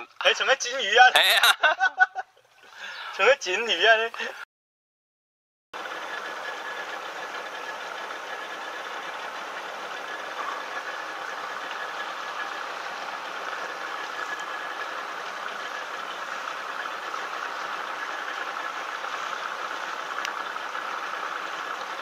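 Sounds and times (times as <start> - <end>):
boat engine droning: 5.8 - 22.0.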